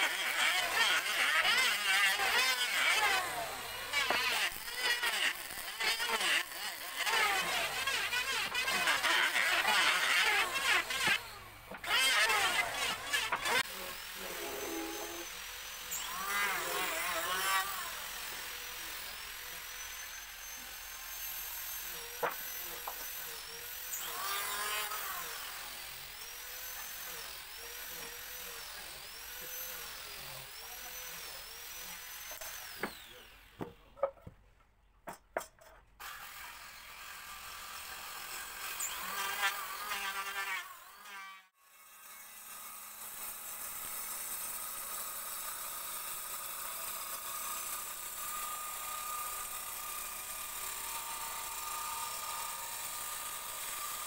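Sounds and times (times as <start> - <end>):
circular saw running: 0.0 - 33.5, 42.4 - 54.0
power woodworking machine whining: 0.0 - 33.7, 43.8 - 54.0.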